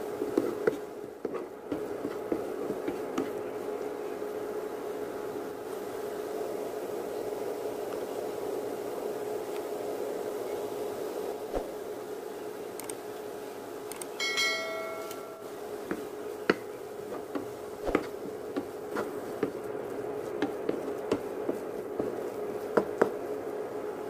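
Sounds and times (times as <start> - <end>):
steady hum: 0.0 - 24.0
wooden spatula stirring in pan: 0.1 - 3.7, 17.1 - 24.0
brief metallic ring: 14.2 - 15.6.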